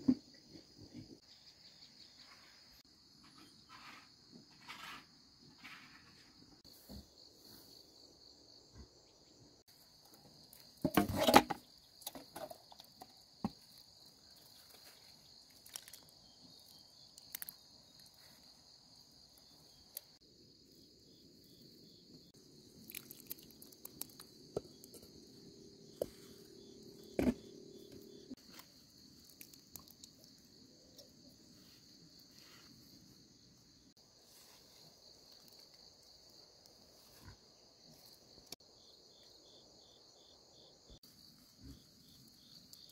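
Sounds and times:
insects chirring: 1.0s - 42.9s
water pouring onto soil: 22.8s - 24.2s.

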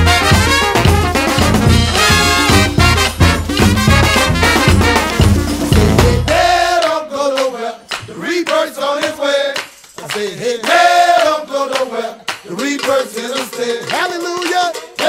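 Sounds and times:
brass band: 0.0s - 7.0s
handclaps: 3.5s - 3.8s, 6.2s - 15.0s
men singing together: 5.8s - 15.0s.

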